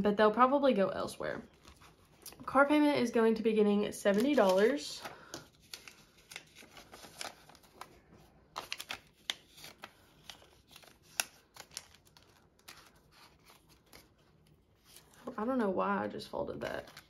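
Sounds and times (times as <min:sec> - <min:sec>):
plastic pouch handling: 0:01.5 - 0:02.4, 0:04.0 - 0:15.4
paper banknotes rustling: 0:03.9 - 0:15.4.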